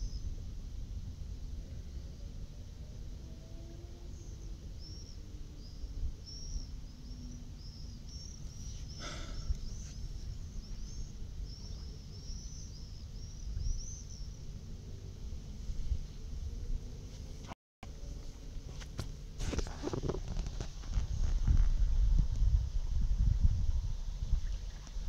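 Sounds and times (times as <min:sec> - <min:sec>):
low outdoor rumble: 0:00.0 - 0:25.0
small bird chirping: 0:04.1 - 0:14.4.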